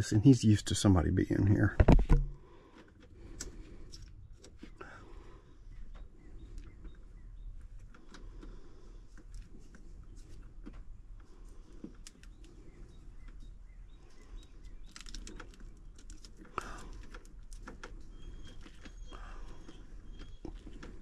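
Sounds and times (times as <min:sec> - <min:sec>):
small knocks: 0:01.8 - 0:02.4.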